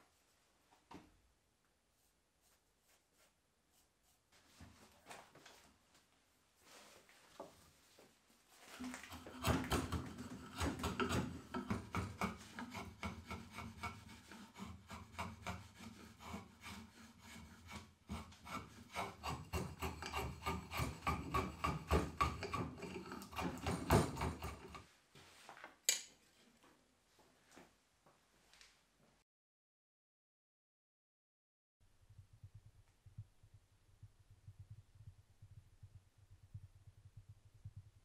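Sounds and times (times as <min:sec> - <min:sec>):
drawknife scraping wood: 0:08.8 - 0:24.8.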